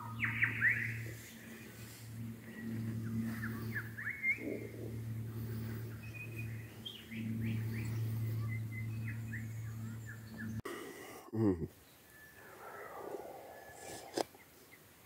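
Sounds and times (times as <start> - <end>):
birds chirping: 0.0 - 10.6, 11.7 - 15.0
loud sound close to microphone: 0.0 - 10.6
low steady hum: 0.0 - 14.2.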